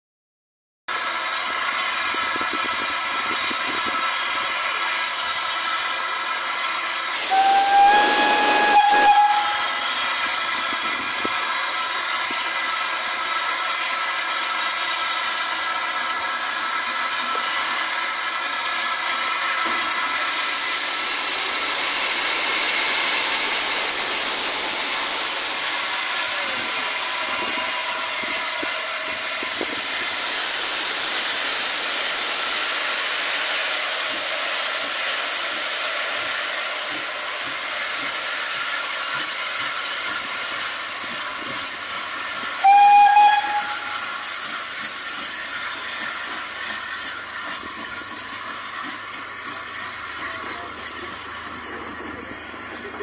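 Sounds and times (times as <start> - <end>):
steam engine hissing: 0.9 - 53.0
steam whistle blast: 7.1 - 10.4, 21.5 - 29.0, 42.6 - 44.6.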